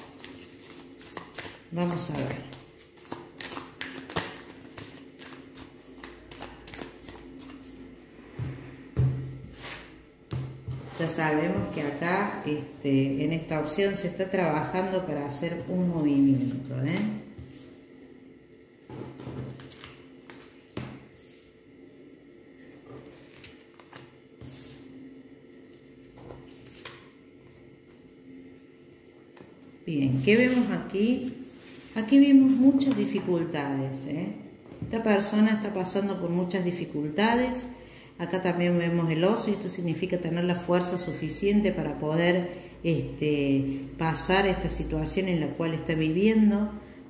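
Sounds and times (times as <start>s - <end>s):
cards being shuffled by hand: 0.0s - 7.8s.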